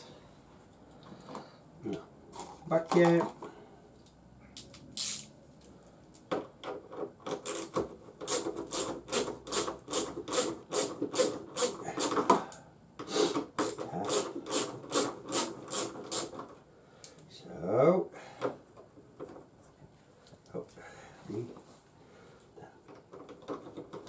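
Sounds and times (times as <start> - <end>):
hand ratchet rasping: 7.3 - 12.4, 13.6 - 16.5.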